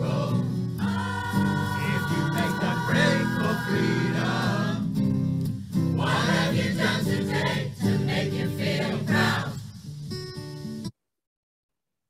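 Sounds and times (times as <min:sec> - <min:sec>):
choir singing: 0:00.0 - 0:05.0, 0:06.0 - 0:09.7
acoustic guitar: 0:00.0 - 0:10.9.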